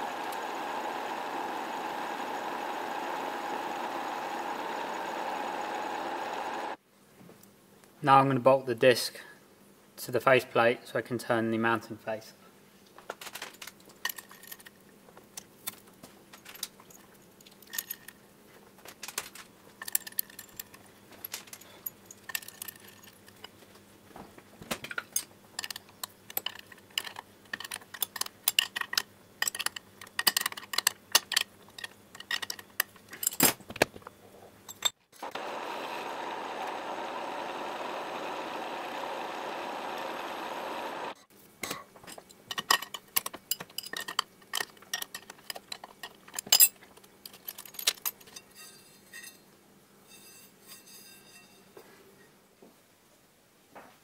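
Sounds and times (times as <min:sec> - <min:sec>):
metal lathe running: 0:00.0 - 0:06.8, 0:35.2 - 0:41.2
metallic clicks of bolts and spanner: 0:19.0 - 0:23.6, 0:24.9 - 0:33.6, 0:42.1 - 0:48.5.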